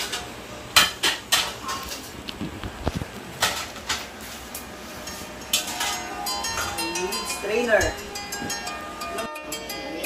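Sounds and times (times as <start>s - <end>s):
utensils and cookware knocking: 0.0s - 2.2s, 3.4s - 9.0s
low room noise: 0.0s - 10.0s.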